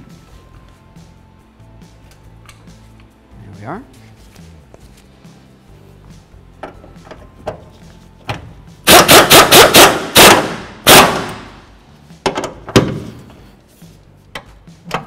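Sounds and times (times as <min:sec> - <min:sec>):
impact wrench rattling bursts: 0:08.9 - 0:11.5.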